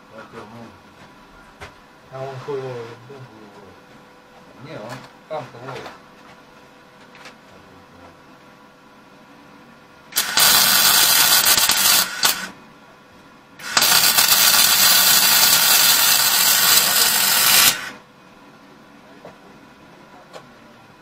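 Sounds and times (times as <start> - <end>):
welding arc burning: 10.1 - 12.6, 13.6 - 18.0.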